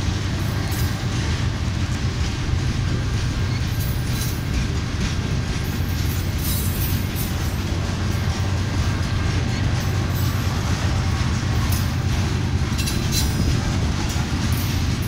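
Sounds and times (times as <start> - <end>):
freight train wheels rumbling: 0.0 - 15.0
train cars rattling and clanking: 0.0 - 15.0.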